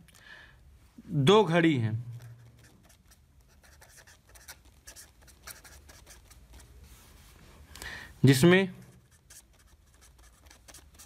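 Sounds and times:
pen scratching on paper: 2.4s - 6.7s, 9.0s - 11.0s.

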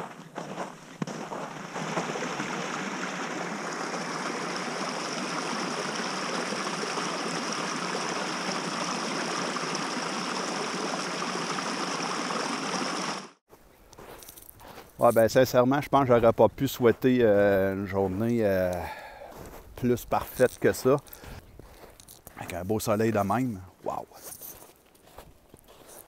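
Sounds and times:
brook running over rocks: 0.2s - 13.4s.

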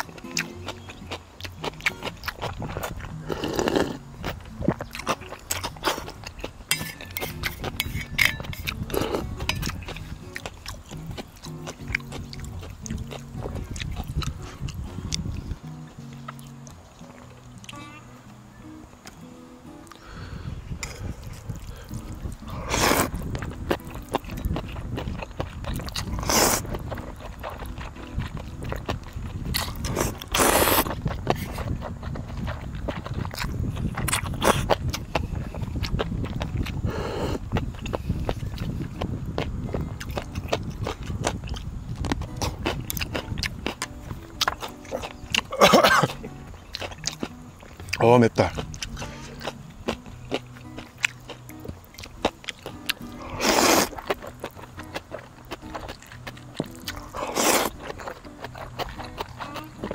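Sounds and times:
loud noisy eating bursts: 0.0s - 15.5s, 19.9s - 39.1s, 39.7s - 59.9s
slurping and chewing noodles: 0.0s - 16.5s, 20.8s - 59.9s
utensils clicking against bowl: 6.7s - 10.0s.

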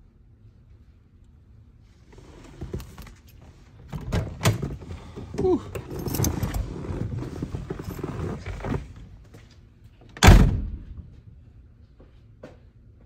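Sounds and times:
rustling in car cabin: 2.0s - 9.5s.

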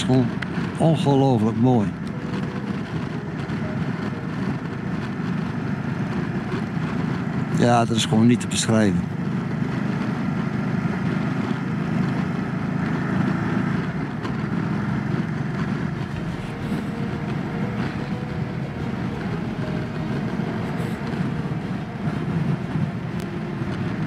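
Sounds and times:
motorcycle engine drone: 0.0s - 24.0s
wind rush: 9.2s - 24.0s.

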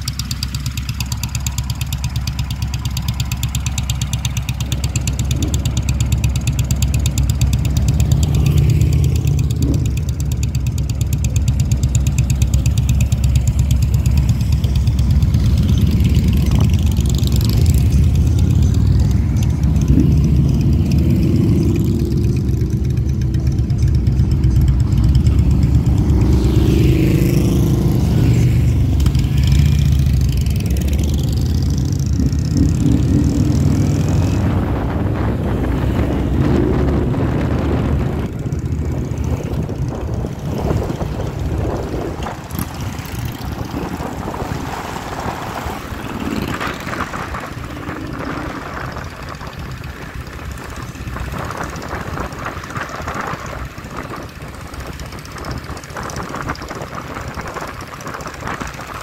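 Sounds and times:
motorcycle engines running: 0.0s - 59.0s.

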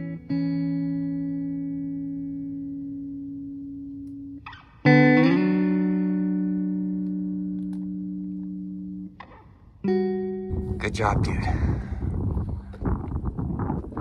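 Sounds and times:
guitar chords ringing: 0.0s - 11.0s.

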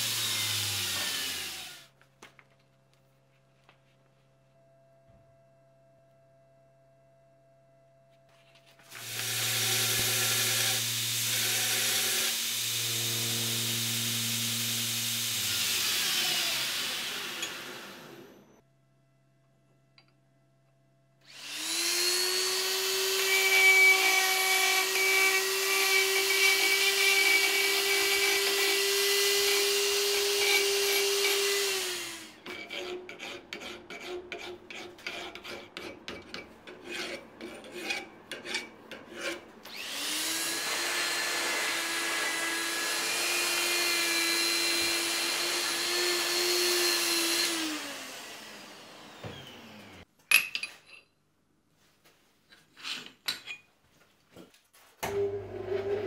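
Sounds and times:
electric grinder running: 0.0s - 1.9s, 9.0s - 18.5s, 39.7s - 50.0s
file scraping steel: 32.4s - 39.5s, 55.5s - 56.0s.

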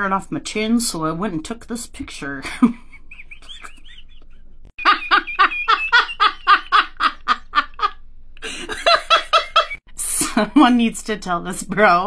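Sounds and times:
person laughing hard: 2.5s - 9.8s.

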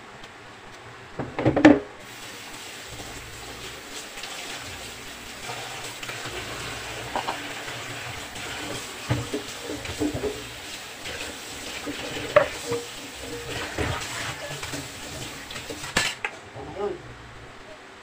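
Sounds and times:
chicken rinsed by hand: 2.0s - 16.2s
tap running into plastic basin: 6.2s - 15.9s.

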